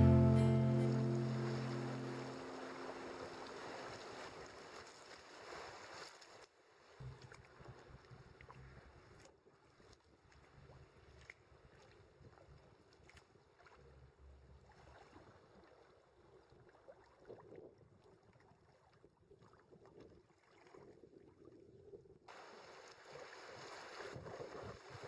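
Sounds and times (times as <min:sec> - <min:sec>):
rushing white water: 0:00.0 - 0:04.6
soft water splashes: 0:00.8 - 0:25.0.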